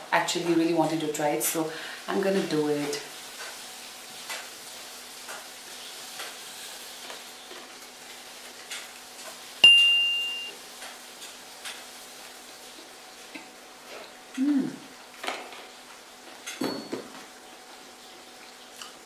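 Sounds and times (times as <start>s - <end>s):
bright ding chime: 9.6s - 10.5s.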